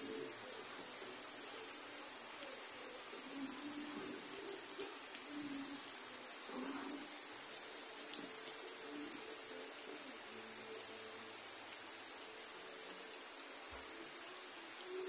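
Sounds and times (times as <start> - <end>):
high-pitched insect drone: 0.0 - 15.0
rain hissing: 0.0 - 15.0.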